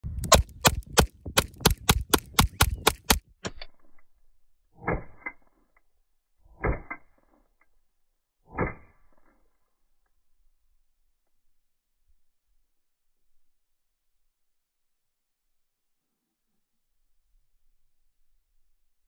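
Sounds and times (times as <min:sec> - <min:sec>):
pistol shots: 0:00.2 - 0:03.2
slowed-down gunshots: 0:00.2 - 0:03.2, 0:04.8 - 0:05.4, 0:06.6 - 0:07.0.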